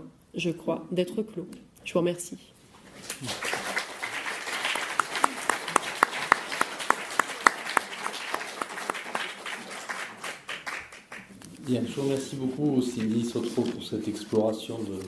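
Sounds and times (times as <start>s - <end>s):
audience applauding: 3.0s - 11.4s
close hand clapping: 3.0s - 11.4s.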